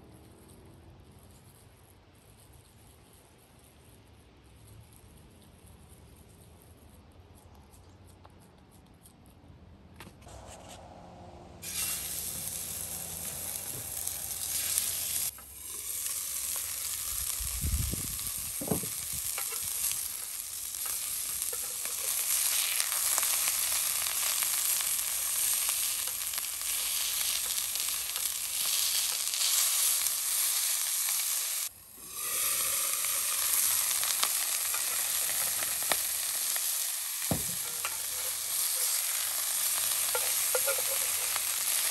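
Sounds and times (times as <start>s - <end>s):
patties sizzling in a skillet: 11.6s - 41.9s.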